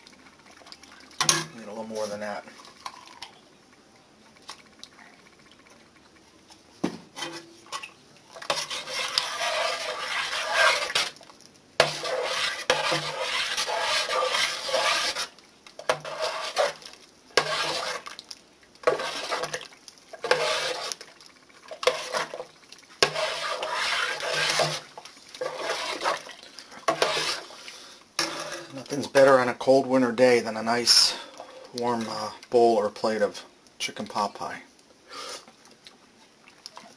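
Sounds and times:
spoon scraping metal pot: 0:07.2 - 0:11.2, 0:11.8 - 0:18.1, 0:18.8 - 0:19.6, 0:20.2 - 0:21.0, 0:21.7 - 0:22.4, 0:23.0 - 0:27.5, 0:28.2 - 0:28.9.

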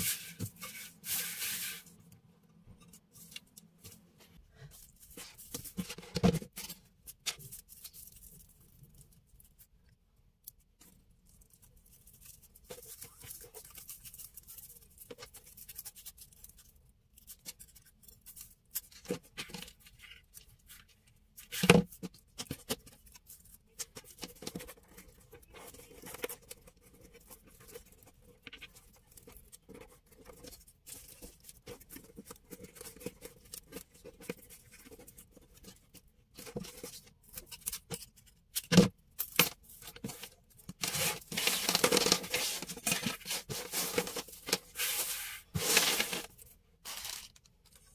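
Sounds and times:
raffia strands rustling: 0:00.0 - 0:02.0, 0:40.1 - 0:47.4.

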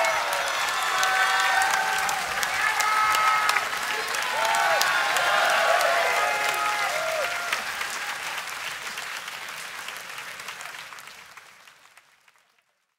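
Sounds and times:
shouted cheers: 0:00.0 - 0:08.8
audience applauding: 0:00.0 - 0:12.9.

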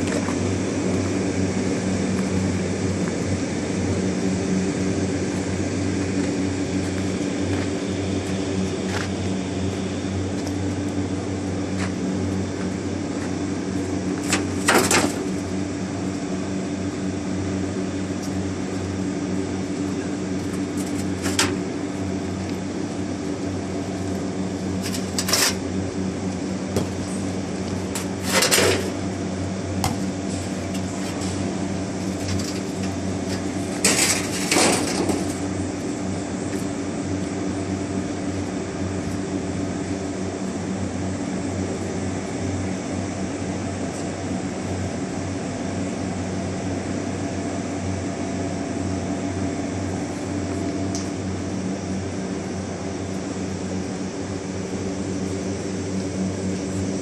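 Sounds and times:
small engine droning: 0:00.0 - 0:34.5.

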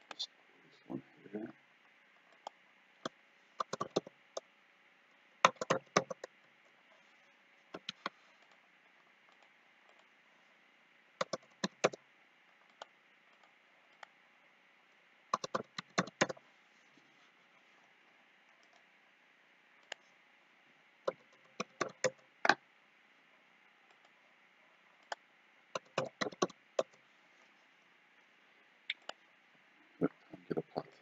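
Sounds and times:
mouse clicks: 0:02.3 - 0:04.1
keyboard typing: 0:02.3 - 0:04.4, 0:05.4 - 0:06.3, 0:07.8 - 0:08.1, 0:11.2 - 0:12.0, 0:15.3 - 0:16.4, 0:21.1 - 0:22.6, 0:25.8 - 0:27.0.

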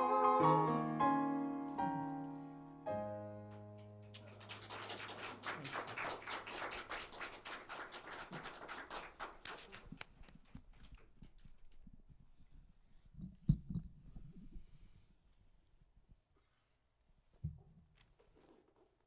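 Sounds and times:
piano chord: 0:00.0 - 0:04.4
audience applauding: 0:03.8 - 0:11.0.

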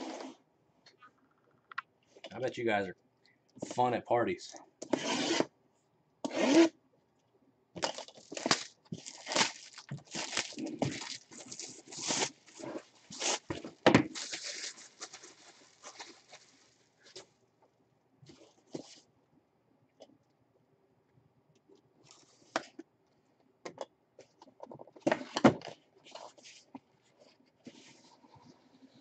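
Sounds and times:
plastic shrink wrap tearing: 0:07.8 - 0:13.5, 0:14.1 - 0:16.8.

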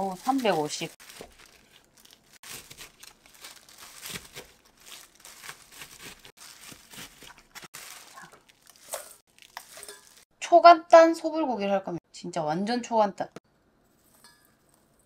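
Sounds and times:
plastic glove crinkling: 0:00.0 - 0:10.3.

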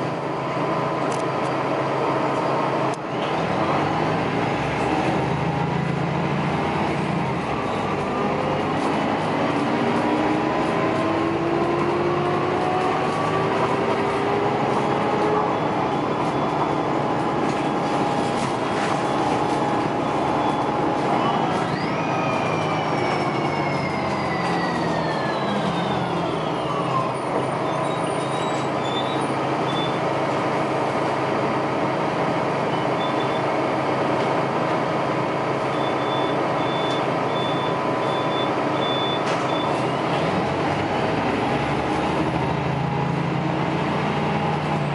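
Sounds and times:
bus engine and drivetrain: 0:00.0 - 0:44.9
road noise: 0:00.0 - 0:44.9.

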